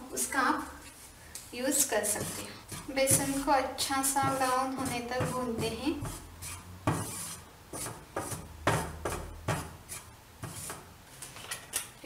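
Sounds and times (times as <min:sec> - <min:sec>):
spatula scraping frying pan: 0:01.8 - 0:10.9.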